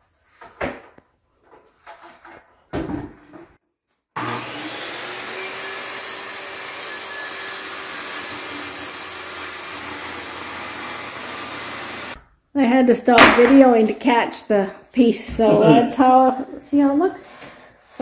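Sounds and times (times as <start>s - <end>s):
circular saw cutting wood: 4.2s - 12.2s.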